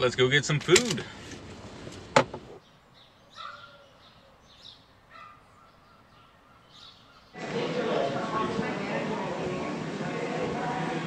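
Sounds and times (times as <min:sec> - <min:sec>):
outdoor air: 0:00.0 - 0:11.0
bird calling: 0:02.6 - 0:07.4.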